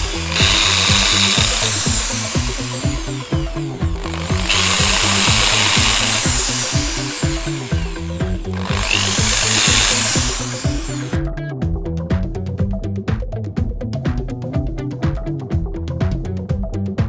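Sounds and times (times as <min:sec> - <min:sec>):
electric drill whining: 0:00.0 - 0:11.2
background music with steady beat: 0:00.0 - 0:17.0.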